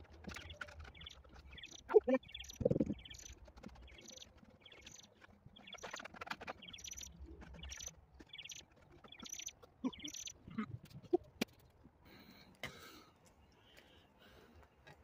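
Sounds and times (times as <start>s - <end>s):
bird chirping: 0.0s - 11.2s.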